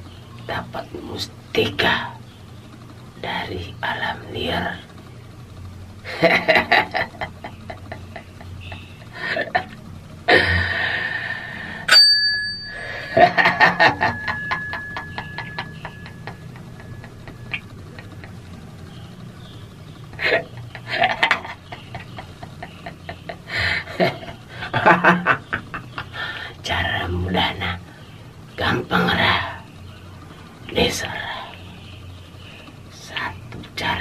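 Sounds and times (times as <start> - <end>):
man laughing: 6.1 - 11.2, 12.9 - 18.6, 20.1 - 26.6
bell-like metallic ring: 11.9 - 17.2.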